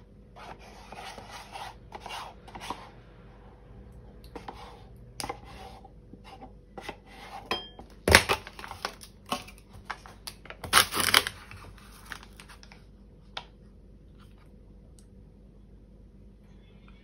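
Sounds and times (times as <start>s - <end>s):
paper carton crinkling: 9.8s - 12.8s.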